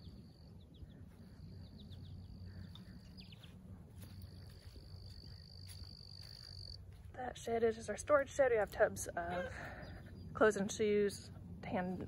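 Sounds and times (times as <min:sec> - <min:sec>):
bird chirps: 0:00.0 - 0:06.8.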